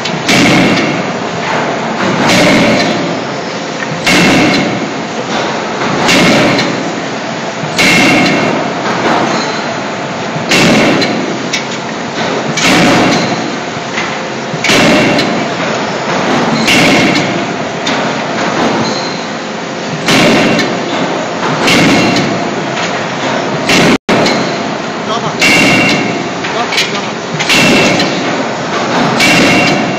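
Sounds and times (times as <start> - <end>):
forging hammer blows with ringing: 0.0 - 5.0, 7.8 - 9.7, 16.3 - 18.1, 20.0 - 22.6, 25.4 - 29.9.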